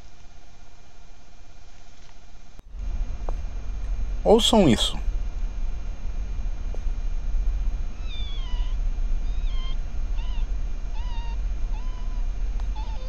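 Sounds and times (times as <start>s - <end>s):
low background rumble: 0.0s - 13.0s
fox pups mewing whines: 7.9s - 13.0s.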